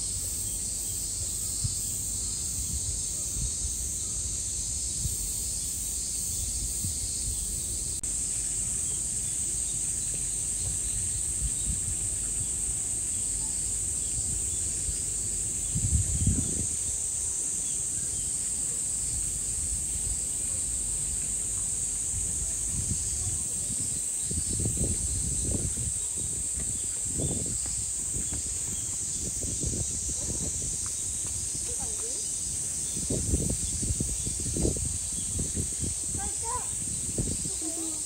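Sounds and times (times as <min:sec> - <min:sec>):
insects droning: 0:00.0 - 0:38.0.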